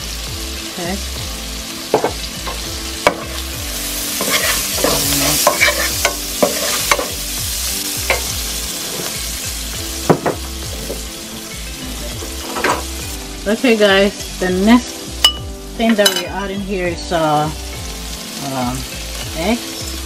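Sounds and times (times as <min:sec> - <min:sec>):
food sizzling in hot oil: 0:00.0 - 0:20.0
utensil tapping and scraping pan: 0:01.9 - 0:03.5, 0:04.2 - 0:07.2, 0:12.2 - 0:13.0.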